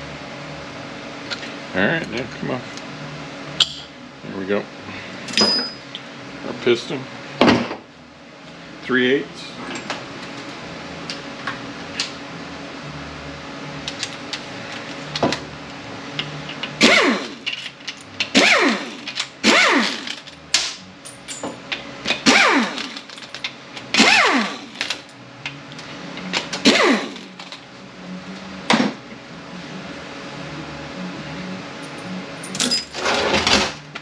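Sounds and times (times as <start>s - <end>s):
power ratchet spinning bolts: 16.6s - 20.4s, 22.1s - 23.3s, 23.9s - 25.1s.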